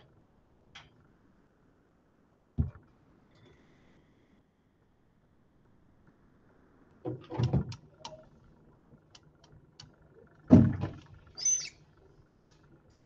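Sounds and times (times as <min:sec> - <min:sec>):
short high squeak: 0:11.4 - 0:11.8.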